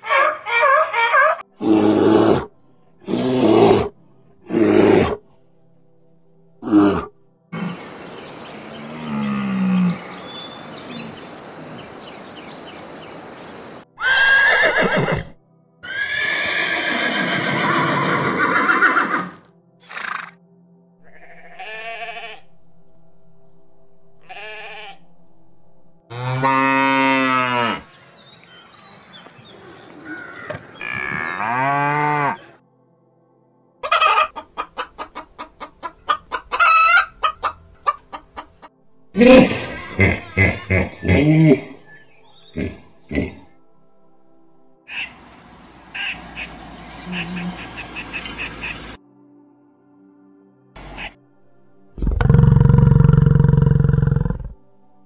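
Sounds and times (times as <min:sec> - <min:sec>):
river water rushing: 0:09.9 - 0:13.8
horse whinnying: 0:14.0 - 0:20.4
cow mooing: 0:26.1 - 0:27.8, 0:30.8 - 0:32.6, 0:47.1 - 0:47.7.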